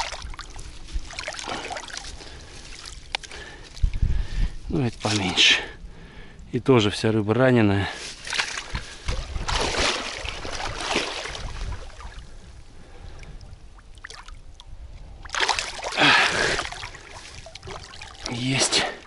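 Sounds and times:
water sloshing and splashing: 0.0s - 4.3s, 4.9s - 5.5s, 8.0s - 19.0s
loud splash: 8.3s - 12.1s, 15.3s - 18.3s.

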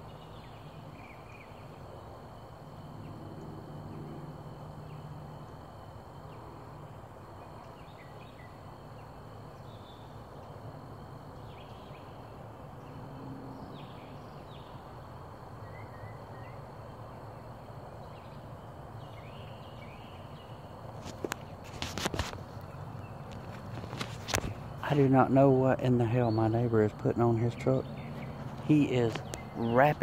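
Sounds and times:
bird chirps: 15.6s - 17.1s, 26.0s - 30.0s.

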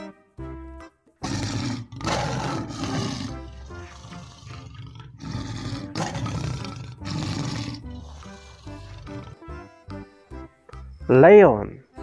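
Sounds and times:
background music: 0.0s - 12.0s
big cat roaring: 1.2s - 9.6s.

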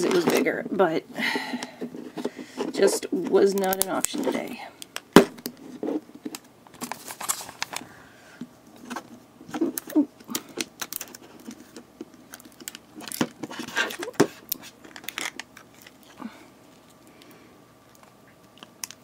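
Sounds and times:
plastic capsules clicking and rattling: 9.7s - 16.1s.

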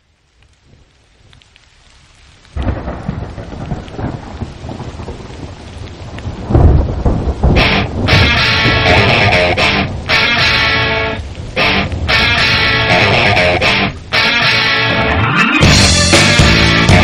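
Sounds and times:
rain hissing: 0.0s - 17.0s
thunder rumbling: 0.6s - 17.0s
electric guitar: 7.5s - 17.0s.

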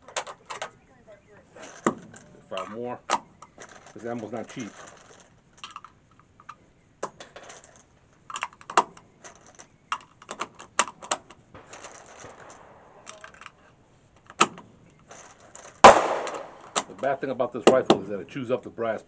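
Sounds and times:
metallic clinks of cartridges: 11.6s - 13.6s.

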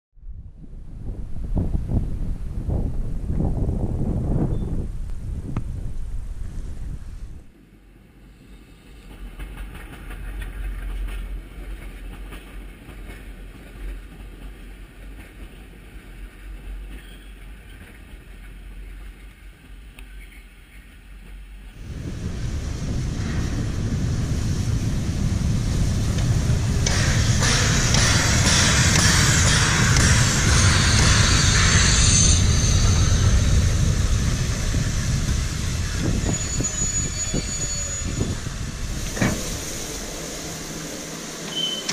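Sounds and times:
train coaches rumbling past: 0.9s - 41.9s
steam hissing: 21.8s - 41.9s.

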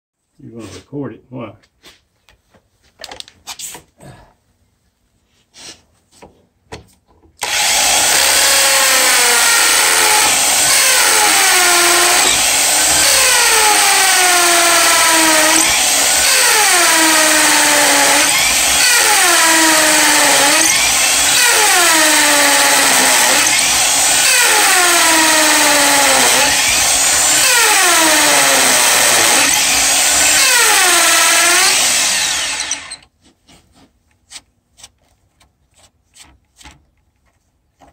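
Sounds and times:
electric drill boring into concrete: 7.4s - 33.0s.

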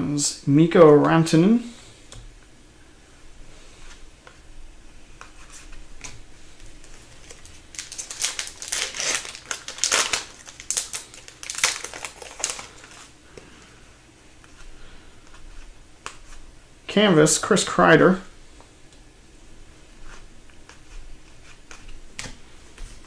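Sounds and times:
foil wrapper crinkling and tearing: 6.8s - 13.1s.

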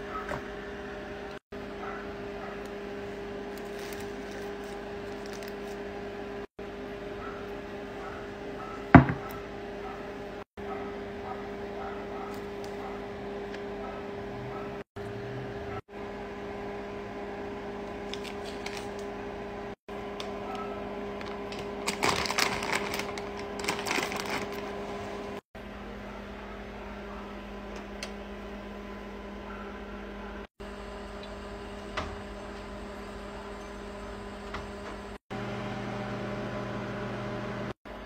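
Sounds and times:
electrical hum: 0.0s - 38.0s
plastic packaging crinkling: 3.5s - 5.8s, 18.1s - 19.1s, 20.6s - 24.9s.

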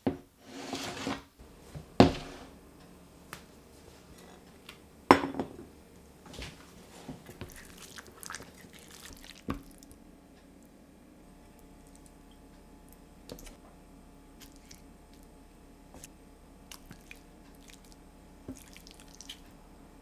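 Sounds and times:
utensil scraping metal pan: 0.4s - 1.3s
dish knocking on wooden table: 2.0s - 2.4s, 5.1s - 5.7s.

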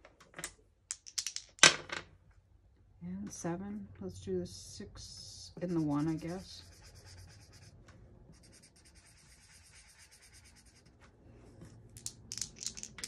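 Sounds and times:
marker scribbling on paper: 5.6s - 7.7s, 8.3s - 10.9s.

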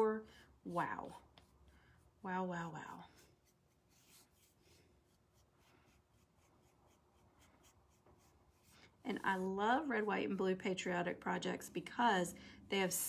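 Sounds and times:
paintbrush strokes on wood: 0.7s - 10.5s.

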